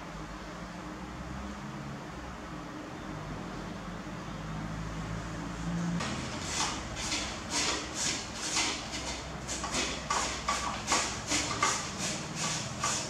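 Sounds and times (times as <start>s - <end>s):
grater scraping vegetable: 6.0s - 13.0s.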